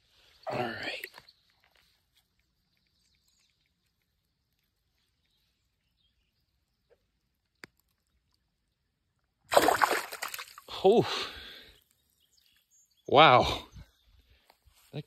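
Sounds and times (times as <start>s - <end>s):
fish splashing in water: 9.5s - 10.6s.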